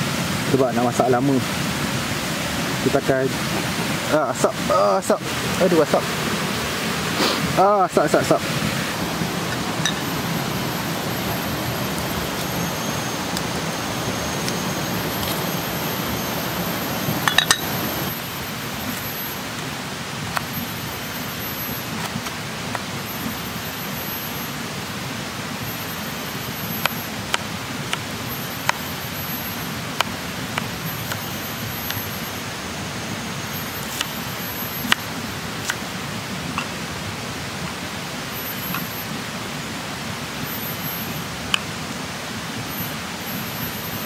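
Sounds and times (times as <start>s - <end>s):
river rushing: 0.0s - 44.0s
thin high whine: 0.0s - 44.0s
wood fire crackling: 8.6s - 18.1s.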